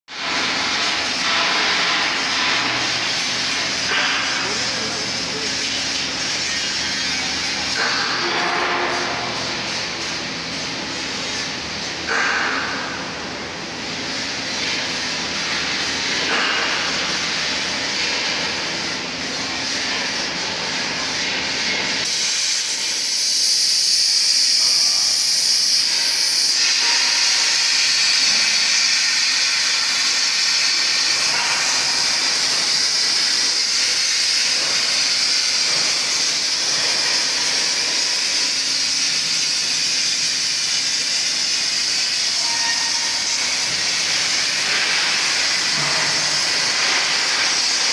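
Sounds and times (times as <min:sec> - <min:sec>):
machinery noise: 0:00.1 - 0:47.9
cutting torch hissing: 0:22.0 - 0:47.9.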